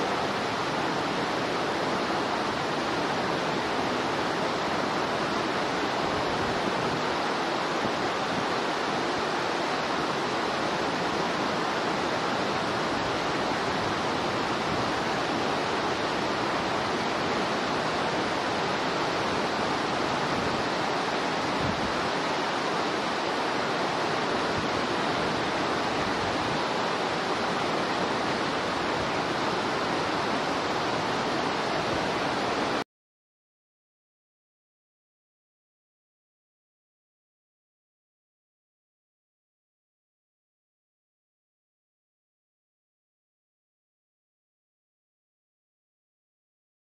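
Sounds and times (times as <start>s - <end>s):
running water rushing: 0.0s - 32.8s.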